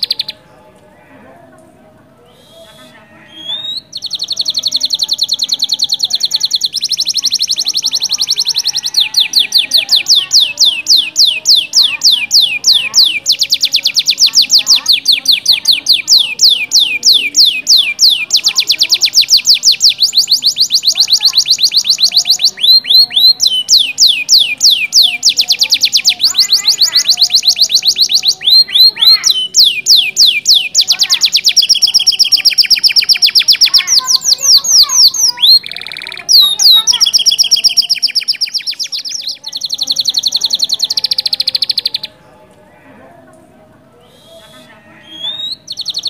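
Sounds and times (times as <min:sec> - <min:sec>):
canary singing trills and whistles: 0:00.0 - 0:00.5, 0:02.2 - 0:42.2, 0:44.0 - 0:46.0.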